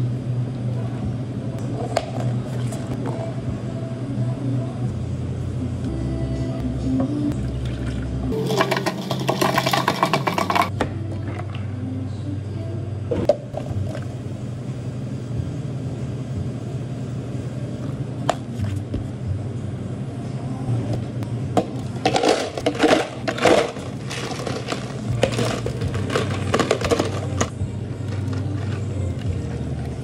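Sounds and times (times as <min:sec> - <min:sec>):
low equipment hum: 0:00.0 - 0:30.0.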